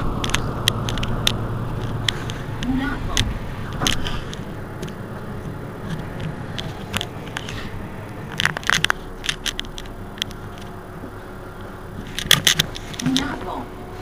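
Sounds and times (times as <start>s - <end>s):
sharp clicks: 0.0s - 11.2s
diesel bus engine idling: 0.0s - 14.0s.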